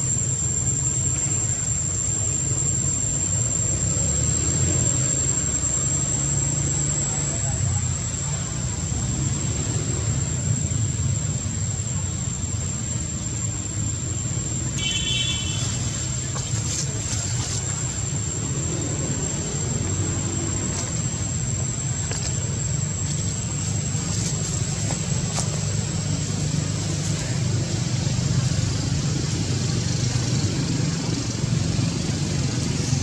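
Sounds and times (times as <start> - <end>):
high-pitched whine: 0.0 - 33.0
low motor hum: 15.5 - 33.0.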